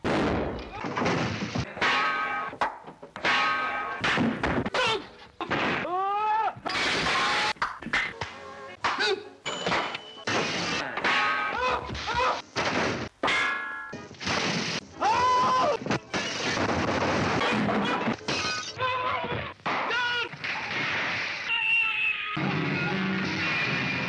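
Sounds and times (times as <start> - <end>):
crashes and shattering: 12.6 - 18.8.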